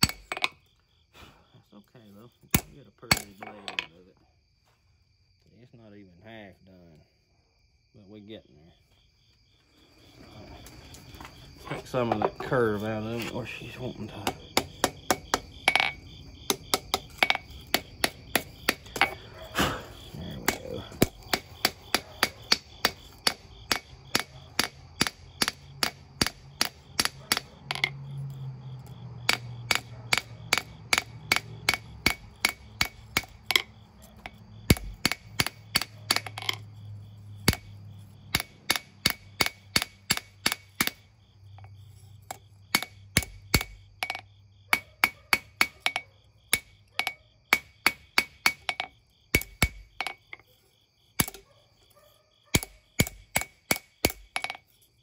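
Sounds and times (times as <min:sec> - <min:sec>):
hammer striking blade on anvil: 0:02.6 - 0:03.5, 0:38.3 - 0:41.0.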